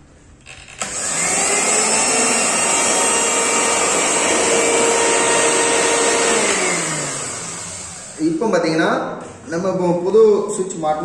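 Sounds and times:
mixer grinder motor whining: 0:00.4 - 0:08.6.

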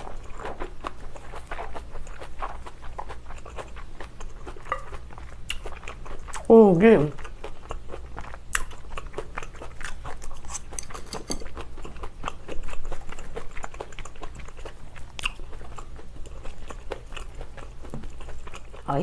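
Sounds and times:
wet crunchy chewing: 0:00.0 - 0:06.5, 0:07.1 - 0:18.9
chopsticks clicking against bowls: 0:10.5 - 0:11.5.

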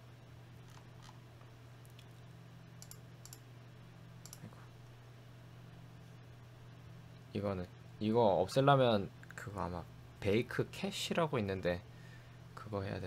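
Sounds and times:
steady low hum: 0:00.0 - 0:13.0
mouse and keyboard clicks: 0:04.2 - 0:04.5.

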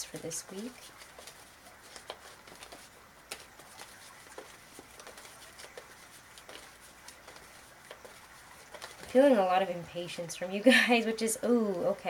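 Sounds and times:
faint clicks and taps: 0:00.1 - 0:09.3.

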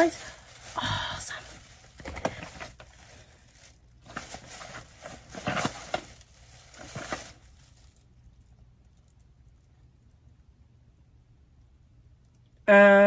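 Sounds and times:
plastic bag rustling: 0:00.0 - 0:08.3
product box handled: 0:01.5 - 0:03.3, 0:04.0 - 0:07.6.

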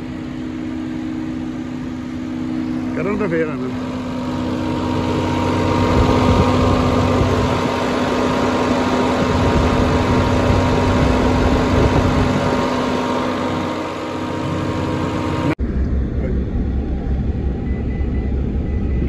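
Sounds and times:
generator engine running: 0:00.0 - 0:19.0.

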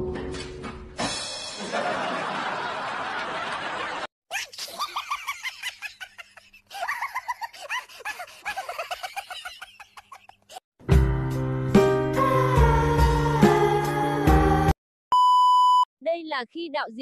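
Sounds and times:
high-pitched laughter: 0:04.3 - 0:10.6.

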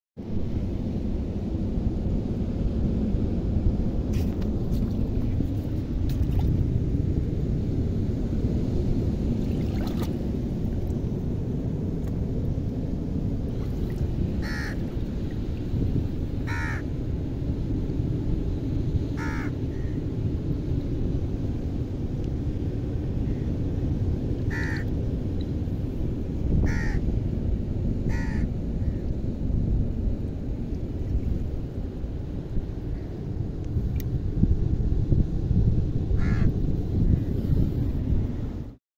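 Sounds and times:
wind: 0:00.2 - 0:38.8
water rumbling: 0:04.4 - 0:07.3, 0:09.2 - 0:17.2
bird calling: 0:14.4 - 0:14.8.

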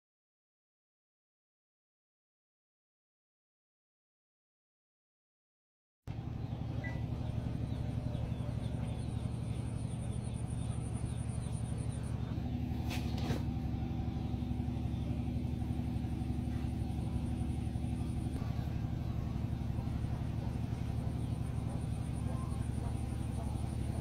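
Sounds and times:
low rumble: 0:06.1 - 0:24.0.

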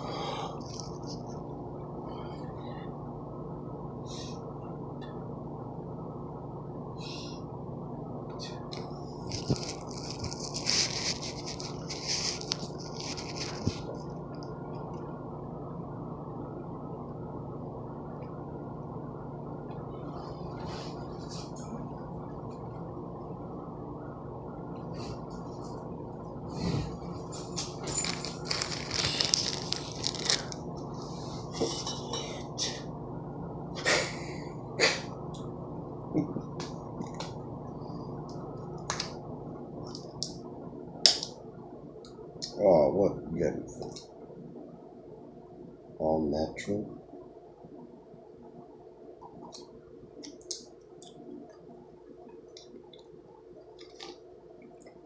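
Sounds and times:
faint steady hum: 0:00.0 - 0:55.0
plastic bag crinkling: 0:09.3 - 0:13.9, 0:27.8 - 0:30.6.

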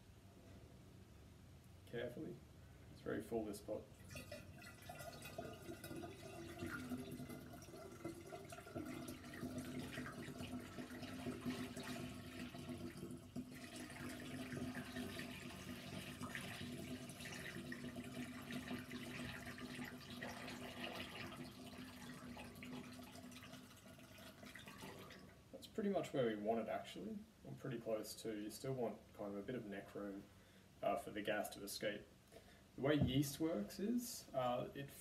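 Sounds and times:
liquid trickling into glass jar: 0:04.0 - 0:25.4.

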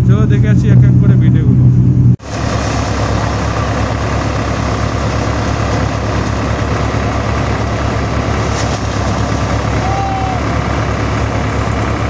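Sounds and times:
tractor engine running: 0:00.0 - 0:12.0
threshing machine din: 0:00.7 - 0:12.0.

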